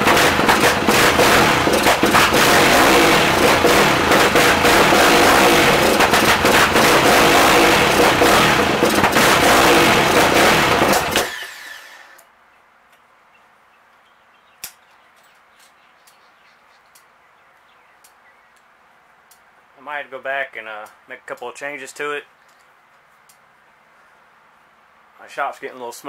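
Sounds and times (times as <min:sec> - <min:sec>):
exhaust popping: 0:00.0 - 0:11.7
quad engine running loud with pops: 0:00.0 - 0:11.7.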